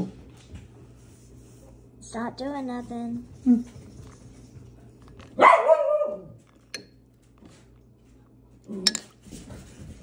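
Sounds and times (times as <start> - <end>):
dog barking: 5.4 - 6.4.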